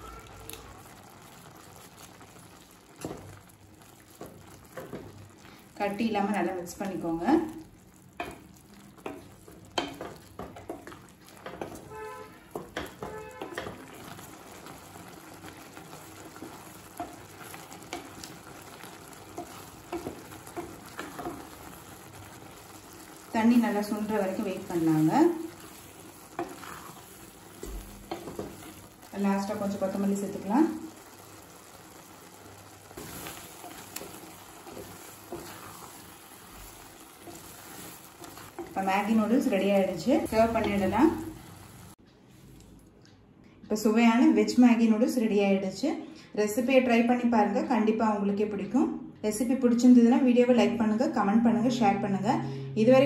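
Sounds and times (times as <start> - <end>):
food sizzling in pot: 0.0 - 42.0
soft wet stirring: 7.5 - 24.4, 25.3 - 29.5, 30.9 - 43.1
spatula scraping a pan: 9.0 - 14.7, 25.5 - 28.9, 32.8 - 41.9
spatula scraping pot: 15.7 - 30.0, 32.8 - 41.6.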